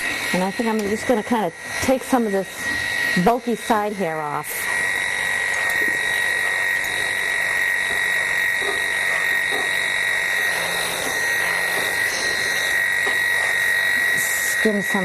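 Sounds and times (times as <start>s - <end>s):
electric clipper buzzing: 0.0s - 15.0s.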